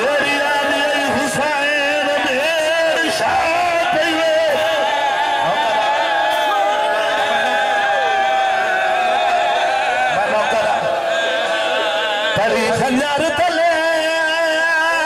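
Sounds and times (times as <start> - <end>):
man chanting over loudspeakers: 0.0 - 4.8, 12.3 - 15.0.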